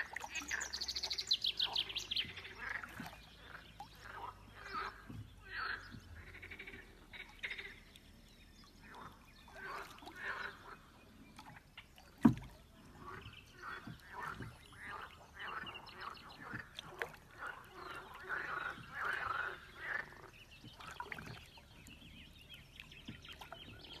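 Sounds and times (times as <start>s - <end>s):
water splashing and swishing: 0.0s - 24.0s.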